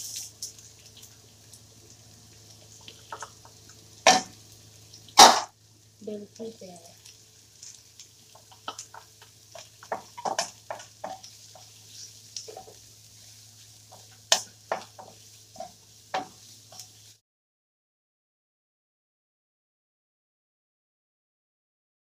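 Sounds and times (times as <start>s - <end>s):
faint sizzle: 0.0s - 17.2s
spatula knocking against wok: 8.4s - 11.8s, 13.9s - 16.4s.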